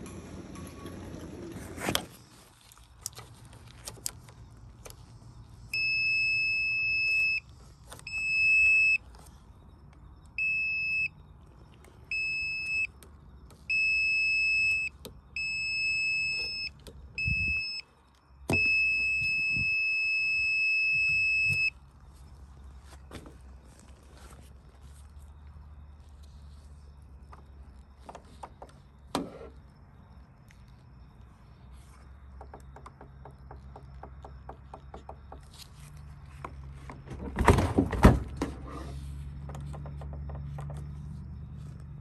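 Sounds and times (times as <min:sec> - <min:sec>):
voltage tester beeping: 0:13.7 - 0:17.8.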